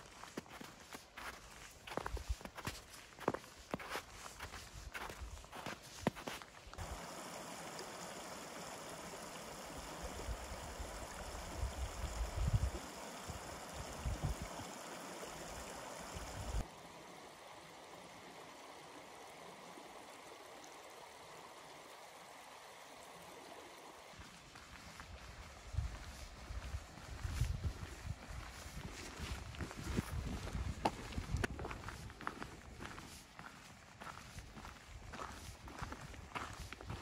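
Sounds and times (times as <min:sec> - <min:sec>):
stream rushing over rocks: 0:06.7 - 0:25.2.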